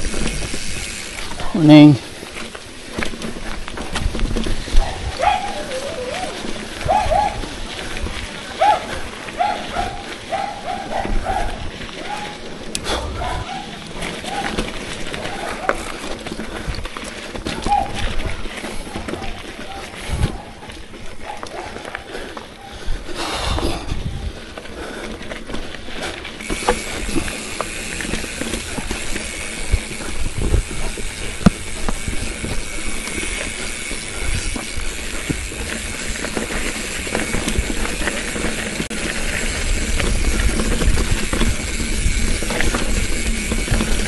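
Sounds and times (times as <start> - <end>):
bicycle knocks and rattles: 0.0 - 22.2, 23.2 - 44.0
bicycle tyres on bumpy trail: 0.0 - 44.0
wind on microphone: 3.8 - 11.8, 20.0 - 20.5, 23.0 - 24.5, 29.6 - 32.7.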